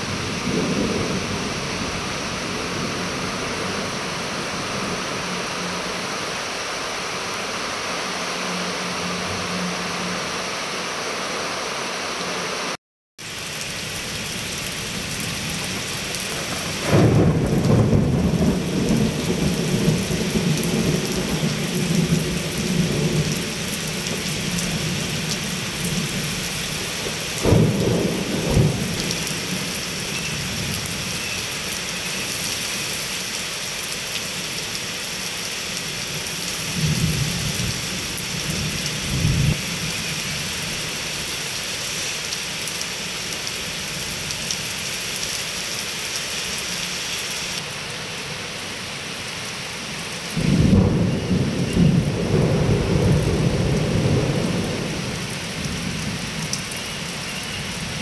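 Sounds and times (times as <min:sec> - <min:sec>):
deep rolls of thunder: 0:00.0 - 0:05.4, 0:16.4 - 0:25.2, 0:27.1 - 0:30.0, 0:50.4 - 0:56.2
heavy rain pouring: 0:00.0 - 0:58.0.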